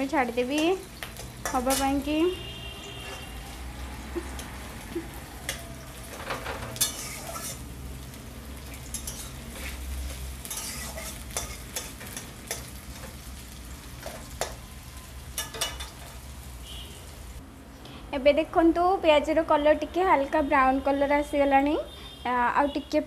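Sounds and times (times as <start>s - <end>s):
onions sizzling in hot oil: 0.0s - 17.4s
metal spatula scraping a pan: 0.4s - 3.5s, 4.2s - 7.8s, 8.8s - 13.3s, 15.3s - 16.2s.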